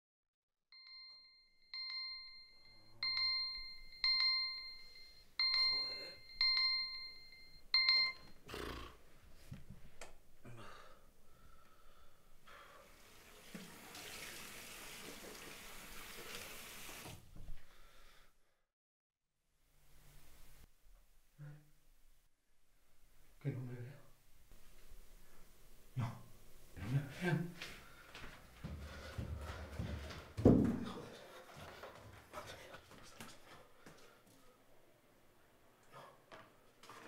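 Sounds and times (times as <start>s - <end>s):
alarm clock beeping: 0.8s - 8.5s
water running from a tap: 12.9s - 17.2s
thump and knocks: 30.4s - 30.9s.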